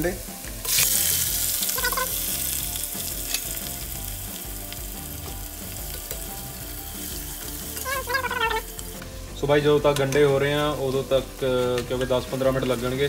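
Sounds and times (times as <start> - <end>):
onions sizzling in hot oil: 0.0 - 13.0.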